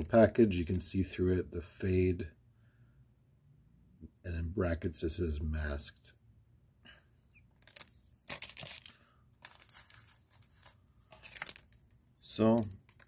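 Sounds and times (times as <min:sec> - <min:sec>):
plastic wrappers crinkling: 0:07.6 - 0:13.0.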